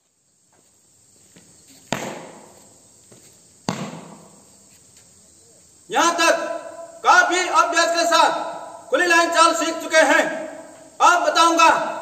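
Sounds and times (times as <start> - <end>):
faint steady hiss: 0.0 - 12.0
sharp bangs: 1.9 - 2.6.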